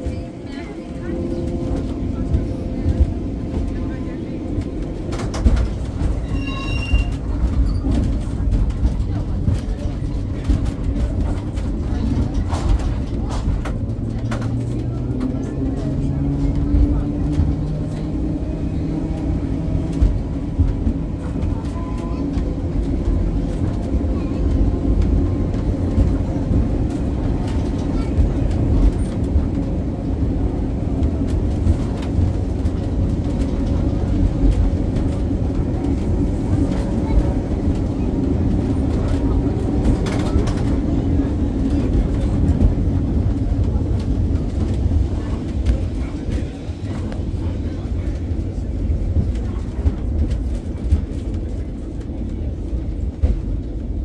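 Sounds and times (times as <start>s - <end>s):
tram rumbling on track: 0.0s - 54.0s.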